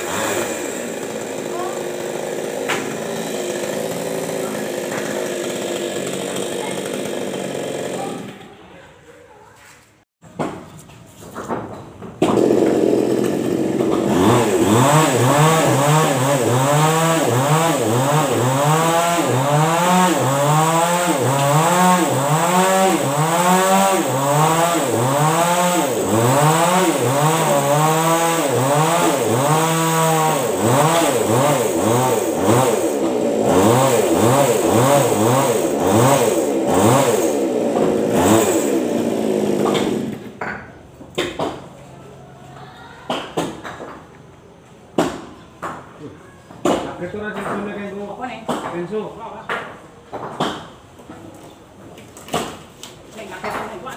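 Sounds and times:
chainsaw cutting a tree limb: 0.0 - 8.5, 12.2 - 40.4.

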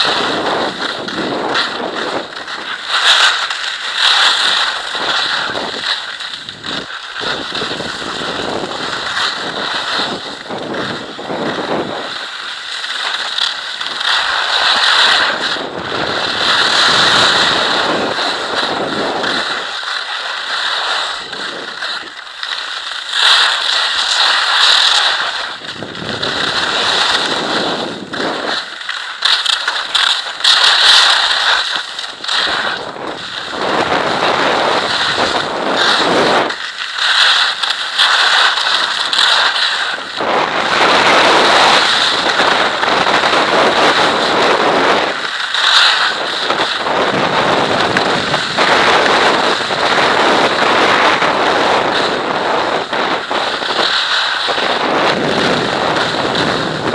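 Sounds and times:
wind on microphone: 0.0 - 3.3, 4.4 - 12.3, 14.1 - 19.8, 25.0 - 28.8, 32.1 - 36.6, 38.6 - 56.9
skis scraping on hard snow: 0.0 - 56.9.

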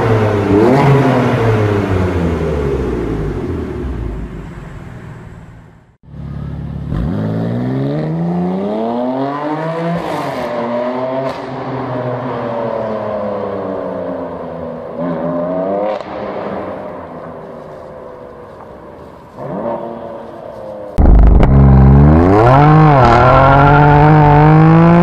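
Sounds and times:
car exhaust revving: 21.0 - 25.0.

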